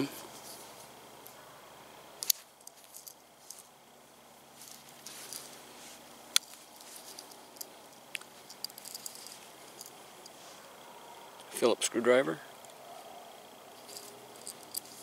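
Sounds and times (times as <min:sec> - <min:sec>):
hands rustling: 0:04.5 - 0:10.8.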